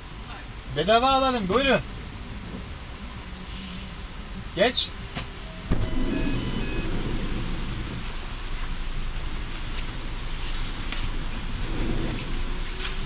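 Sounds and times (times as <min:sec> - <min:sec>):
car rumble: 0:00.0 - 0:13.0
rain: 0:00.0 - 0:13.0
car electronic beep: 0:05.4 - 0:07.4.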